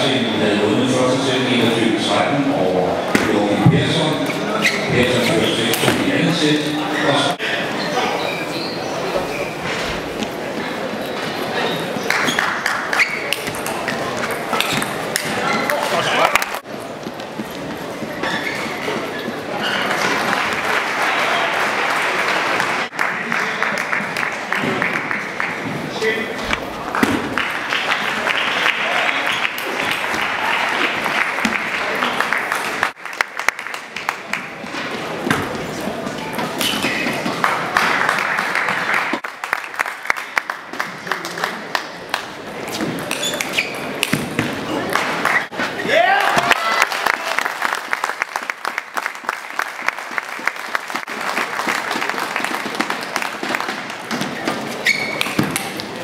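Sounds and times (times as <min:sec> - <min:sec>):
spectators clapping: 0:12.0 - 0:13.4, 0:19.8 - 0:25.8, 0:26.8 - 0:34.8, 0:37.2 - 0:42.5, 0:44.8 - 0:54.1
crowd applause: 0:19.4 - 0:35.2, 0:37.2 - 0:42.3, 0:44.7 - 0:54.2.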